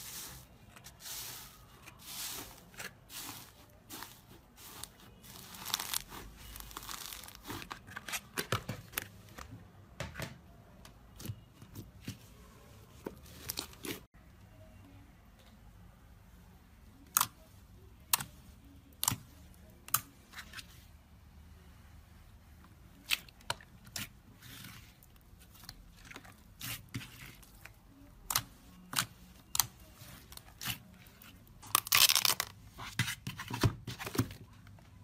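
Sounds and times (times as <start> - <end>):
slime crackling: 1.0 - 7.9.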